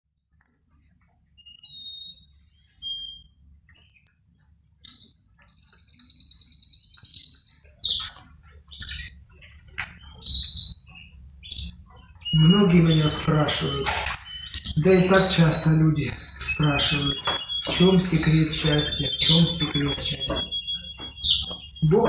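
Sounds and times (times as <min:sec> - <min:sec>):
canary singing: 0:00.6 - 0:22.0
sharp clicks: 0:06.9 - 0:11.3, 0:13.2 - 0:21.7.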